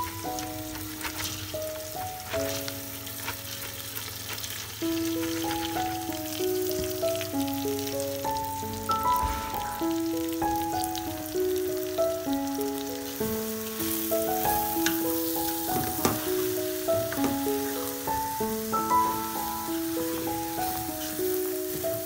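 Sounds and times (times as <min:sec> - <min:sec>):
lentils sizzling in hot oil: 0:00.0 - 0:22.0
background music: 0:04.8 - 0:22.0.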